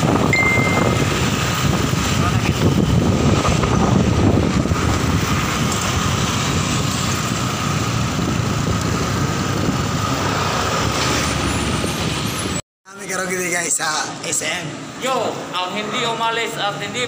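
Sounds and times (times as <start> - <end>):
wind buffeting the microphone: 0.0 - 12.6
road and traffic noise: 0.0 - 17.0.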